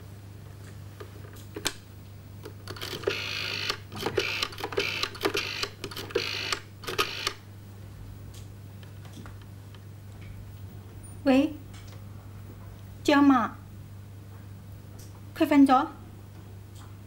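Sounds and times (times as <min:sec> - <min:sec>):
rotary telephone dial whirring: 0:02.6 - 0:07.4.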